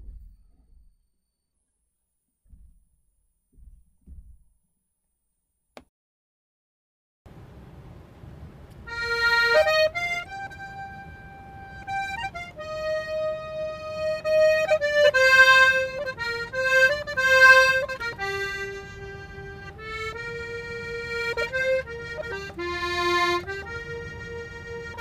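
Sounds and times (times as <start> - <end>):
button accordion melody: 8.9 - 25.0.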